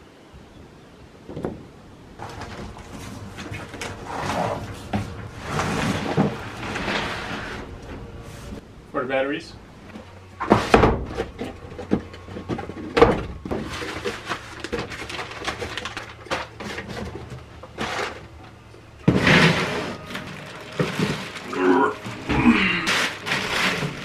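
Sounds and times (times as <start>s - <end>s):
plastic wrapping crinkling: 13.5s - 24.0s.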